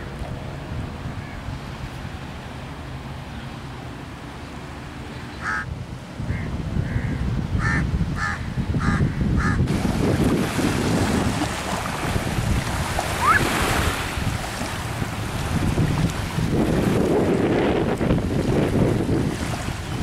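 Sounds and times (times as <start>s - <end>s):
bird calling: 5.1s - 5.7s, 13.1s - 13.6s.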